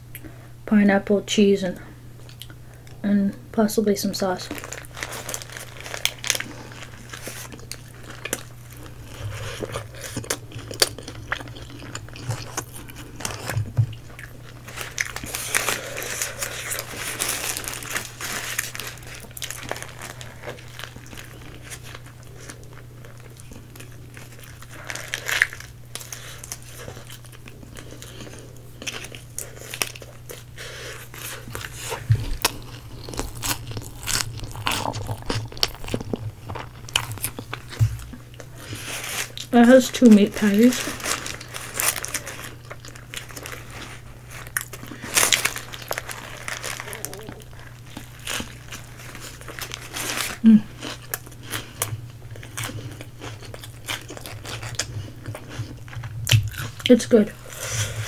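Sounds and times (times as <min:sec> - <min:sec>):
crunching and chewing: 0:02.2 - 0:03.0, 0:04.4 - 0:58.0
paper wrapper crinkling: 0:04.3 - 0:11.0, 0:12.1 - 0:51.4.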